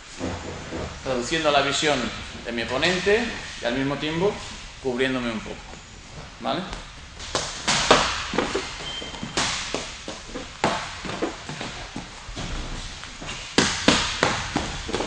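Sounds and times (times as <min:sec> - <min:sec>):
gloves smacking pads: 0:06.7 - 0:12.1, 0:13.0 - 0:15.0.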